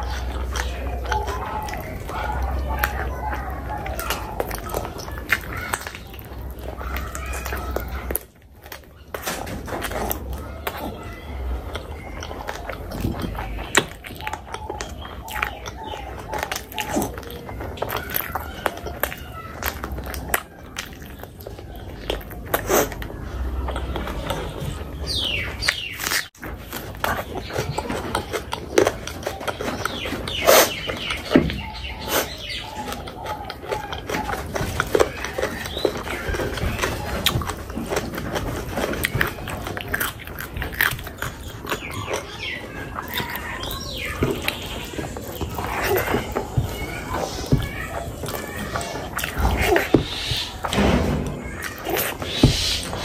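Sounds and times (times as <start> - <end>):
squeaky slurping: 0.0 - 53.0
wet chewing: 0.0 - 53.0
mouth clicks and lip smacks: 11.6 - 50.9.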